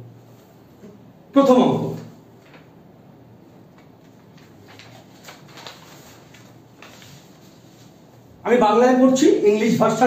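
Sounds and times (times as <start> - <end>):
quiet room hum: 0.0 - 10.0
paper sheets rustling: 2.3 - 2.8, 3.6 - 8.3.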